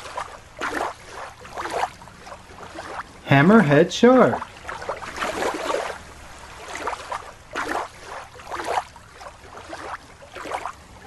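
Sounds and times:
water sloshing and splashing: 0:00.0 - 0:11.0.

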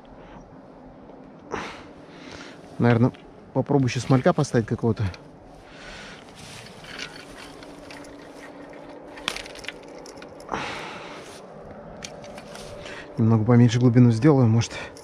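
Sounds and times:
short rustling scrape: 0:05.5 - 0:09.3, 0:12.3 - 0:13.0.

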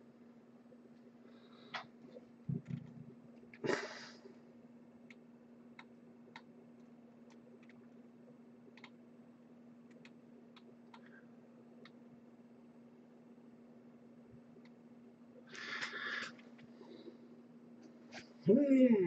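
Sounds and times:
low electrical hum: 0:00.0 - 0:19.0
faint irregular clicks: 0:05.0 - 0:08.0, 0:08.7 - 0:09.0, 0:09.8 - 0:11.2, 0:11.8 - 0:12.0, 0:14.6 - 0:14.8.

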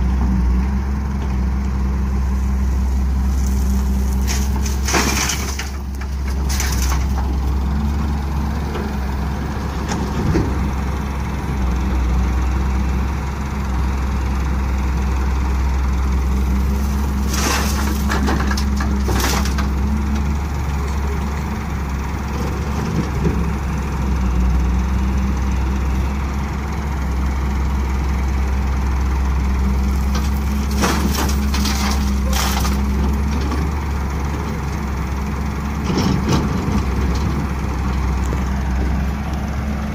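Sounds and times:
diesel engines running: 0:00.0 - 0:39.9
soil crashing into trailer: 0:03.4 - 0:07.4, 0:16.4 - 0:19.8, 0:30.0 - 0:33.3.

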